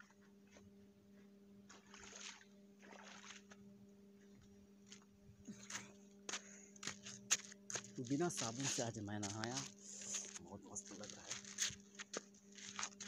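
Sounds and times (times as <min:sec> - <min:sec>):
steady low hum: 0:00.0 - 0:13.0
shallow water splashing: 0:01.7 - 0:03.6
soft swishes of wading: 0:01.7 - 0:04.5.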